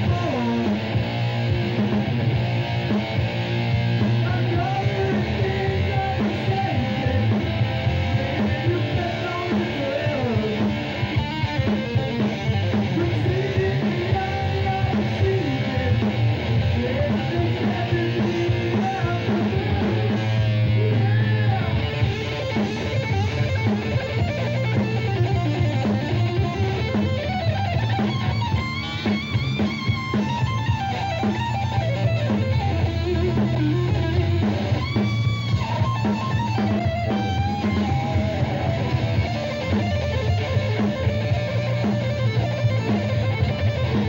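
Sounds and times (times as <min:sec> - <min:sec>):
male lead singer: 0:00.0 - 0:02.4, 0:03.9 - 0:44.0
heavy metal band playing live: 0:00.0 - 0:44.0.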